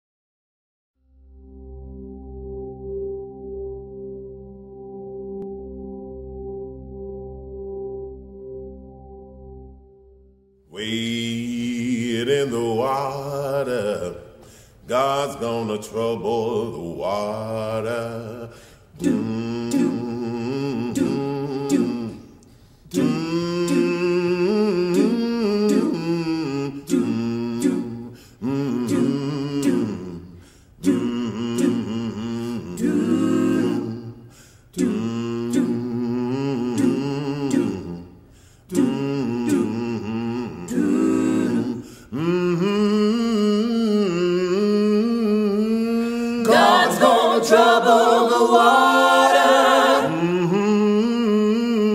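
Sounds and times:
vocal ensemble singing in harmony: 0:10.7 - 0:51.9.

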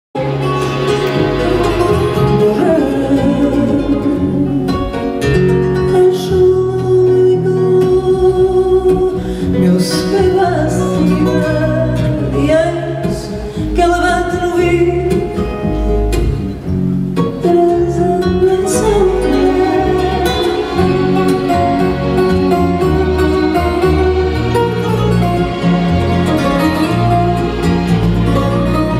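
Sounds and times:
plucked guitars: 0:00.2 - 0:28.9
woman singing slow melody: 0:01.3 - 0:05.0, 0:05.8 - 0:15.5, 0:17.2 - 0:23.8.

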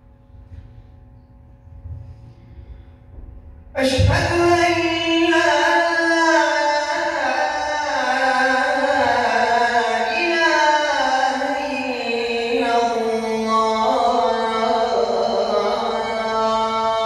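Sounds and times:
man reciting call to prayer: 0:03.8 - 0:17.0.

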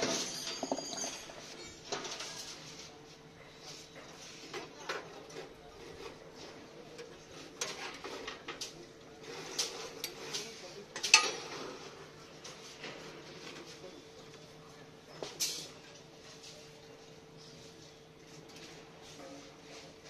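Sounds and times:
steel bars clinking on metal: 0:00.1 - 0:01.3.

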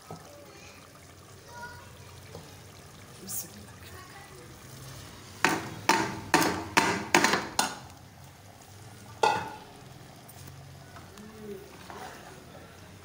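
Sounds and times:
metal utensil knocking on pot rim: 0:05.4 - 0:07.8.

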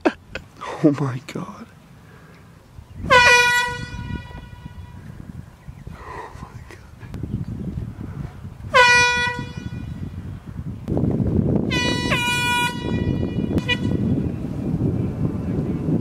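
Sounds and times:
wind rumbling on microphone: 0:00.0 - 0:16.0
air horn blasts: 0:03.0 - 0:05.2, 0:08.7 - 0:10.1, 0:11.6 - 0:14.2.

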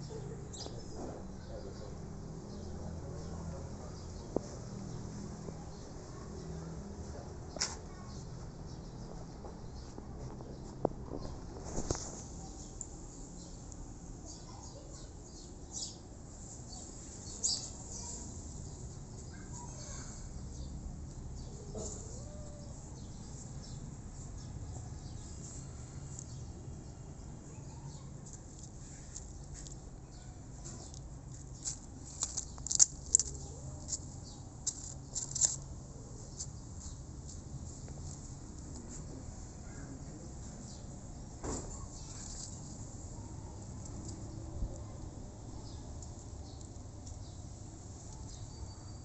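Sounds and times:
outdoor garden ambience: 0:00.0 - 0:49.0
kitten chewing leaves: 0:30.5 - 0:35.8.

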